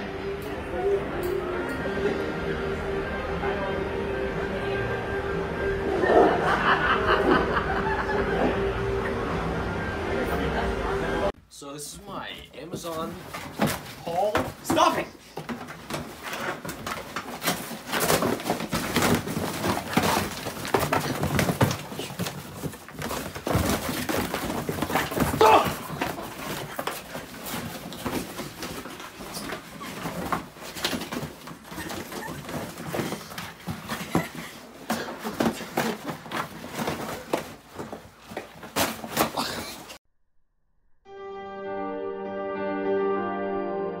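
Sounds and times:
cardboard boxes crunching and tearing: 15.6s - 39.6s.

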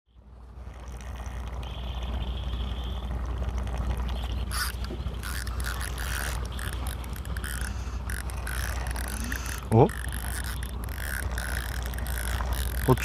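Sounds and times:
steady low hum: 0.1s - 13.0s
fishing reel clicking: 3.4s - 13.0s.

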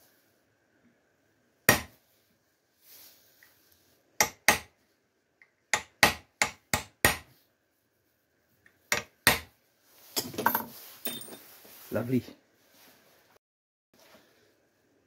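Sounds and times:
tools clattering on bench: 10.1s - 11.5s.

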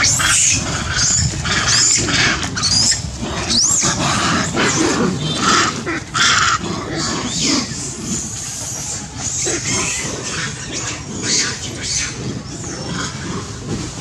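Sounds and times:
monkeys screaming: 0.0s - 14.0s.

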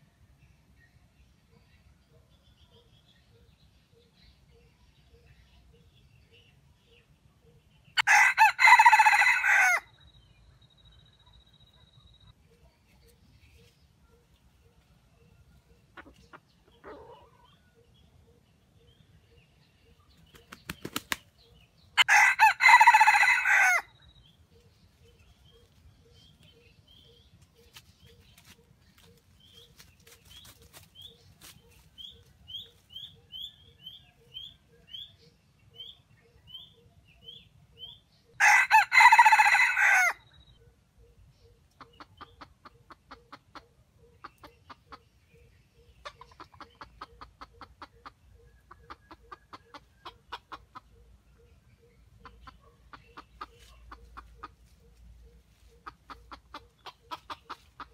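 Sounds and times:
rooster crowing: 8.0s - 9.9s, 22.0s - 23.9s, 38.4s - 40.2s
rooster flapping wings: 20.3s - 21.3s
rapid clucking: 55.6s - 57.9s.

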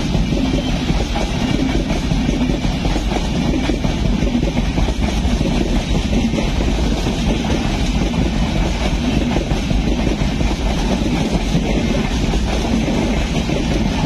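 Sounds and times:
train coaches passing at speed: 0.0s - 14.0s.

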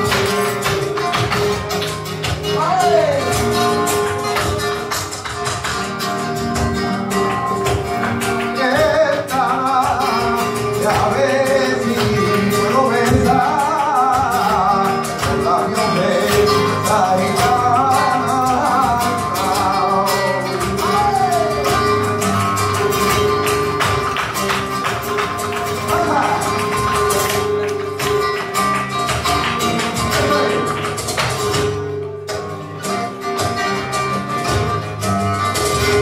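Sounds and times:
acoustic guitars playing: 0.0s - 36.0s
person singing: 8.4s - 22.2s, 25.8s - 26.9s.

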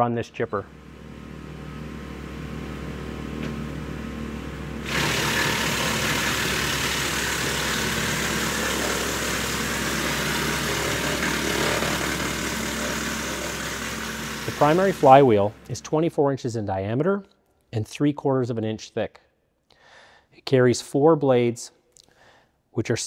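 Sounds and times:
engine and flywheel hum: 0.6s - 15.8s
wood chipper chipping branch: 4.8s - 15.8s.

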